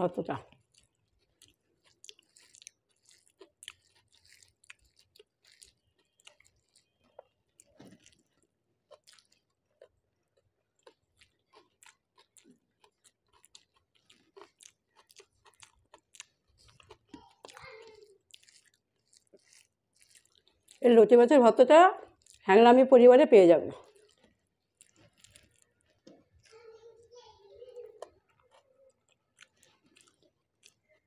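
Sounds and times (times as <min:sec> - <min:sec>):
person chewing food: 0:00.4 - 0:20.8, 0:22.0 - 0:22.5, 0:23.8 - 0:27.1, 0:27.8 - 0:31.0
lip and tongue smacks: 0:00.5 - 0:09.5, 0:28.0 - 0:31.0.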